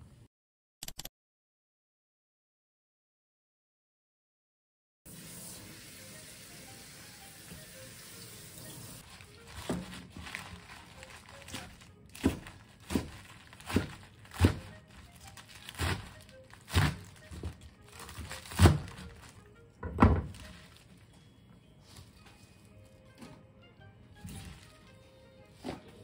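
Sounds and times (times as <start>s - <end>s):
knife chopping on wooden board: 12.1s - 14.7s, 16.7s - 17.5s.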